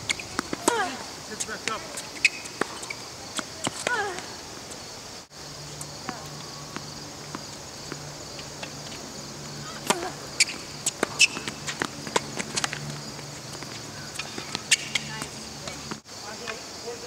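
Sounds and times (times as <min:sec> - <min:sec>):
high insect drone: 0:00.0 - 0:17.0
tennis ball bouncing: 0:00.1 - 0:00.9, 0:01.5 - 0:04.3, 0:05.8 - 0:09.0, 0:09.6 - 0:16.0.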